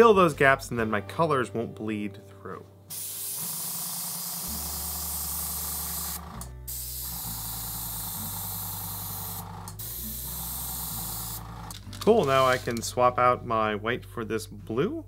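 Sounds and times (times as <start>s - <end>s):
airbrush spraying paint: 2.9s - 12.8s.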